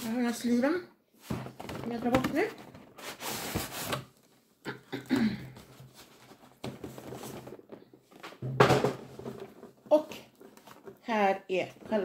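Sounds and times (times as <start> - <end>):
cardboard sleeve scraping and rustling: 1.2 - 4.4, 5.5 - 8.3, 9.0 - 12.0.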